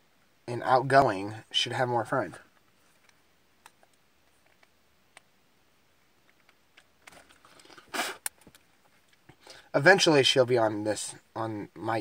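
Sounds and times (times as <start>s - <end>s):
faint clicks of wires: 6.2s - 7.6s, 8.2s - 9.4s.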